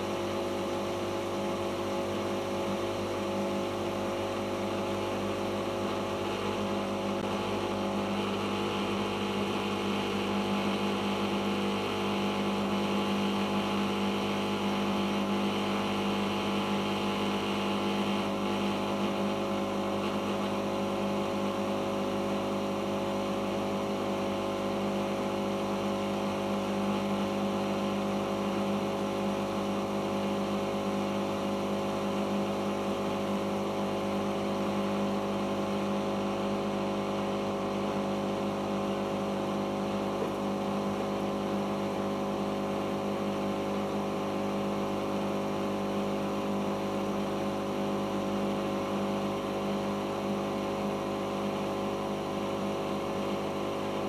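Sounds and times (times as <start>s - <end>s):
washing machine spinning: 0.0s - 54.0s.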